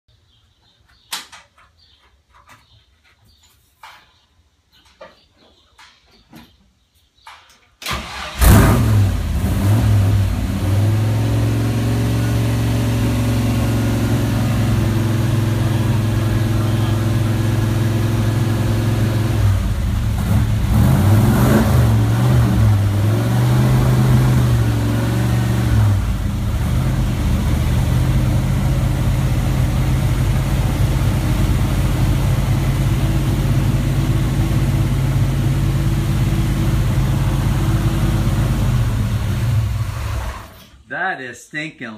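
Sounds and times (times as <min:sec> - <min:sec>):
car engine starting and idling: 0:07.8 - 0:40.8
car engine revving: 0:07.9 - 0:40.6.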